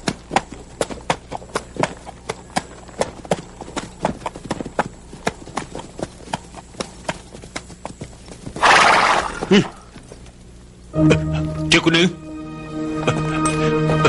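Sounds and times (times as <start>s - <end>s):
horse hooves clip-clopping on dirt: 0.0s - 10.7s.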